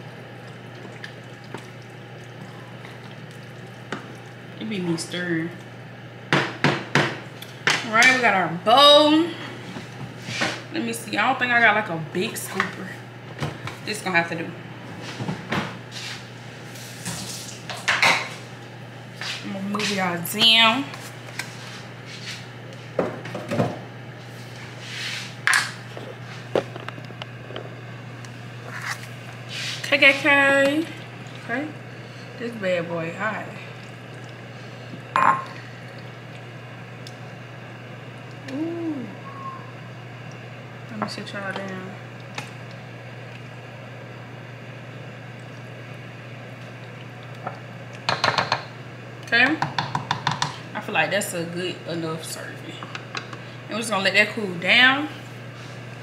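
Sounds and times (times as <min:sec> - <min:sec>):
steady low hum: 0:00.0 - 0:56.0
ladle and pot knocking: 0:48.1 - 0:48.6.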